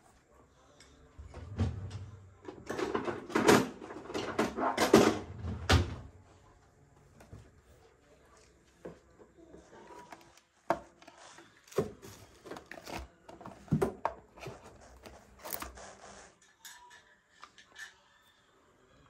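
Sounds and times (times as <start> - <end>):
toiletries knocking and clattering: 1.5 - 6.2.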